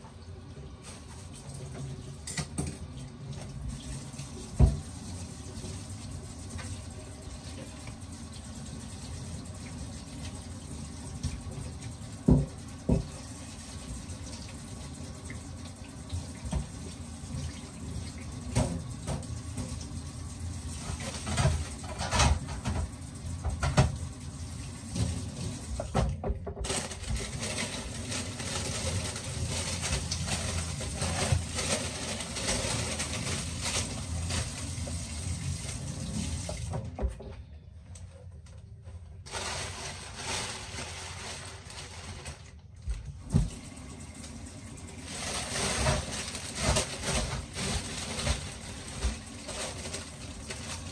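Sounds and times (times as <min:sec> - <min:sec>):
plastic packaging rustling: 0:26.6 - 0:36.0, 0:39.2 - 0:42.6, 0:45.0 - 0:50.9.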